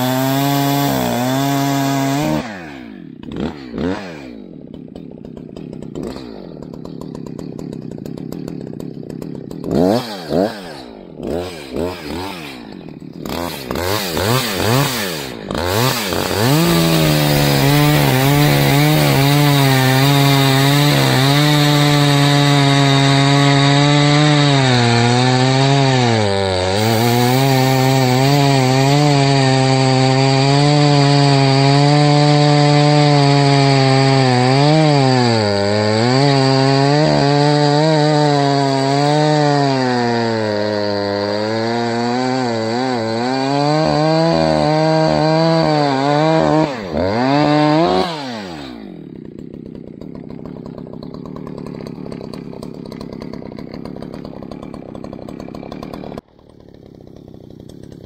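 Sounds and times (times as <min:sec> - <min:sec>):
chainsaw cutting into log: 0:00.0 - 0:58.0
chainsaw revving: 0:00.0 - 0:58.0.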